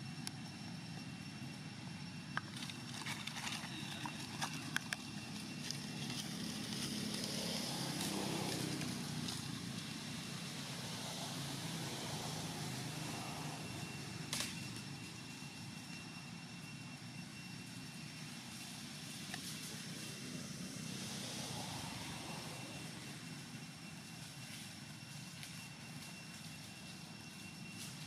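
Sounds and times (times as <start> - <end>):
distant engine drone: 0.0 - 28.0
faint high steady tone: 12.4 - 28.0.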